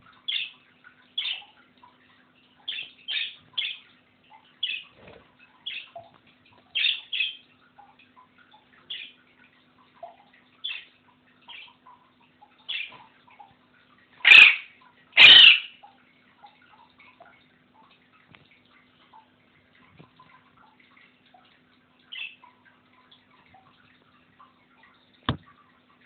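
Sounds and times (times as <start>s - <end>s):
small birds chirping: 0.2s - 7.9s, 8.5s - 9.2s, 10.0s - 13.4s, 22.0s - 22.6s
parrot squawking: 14.2s - 15.7s.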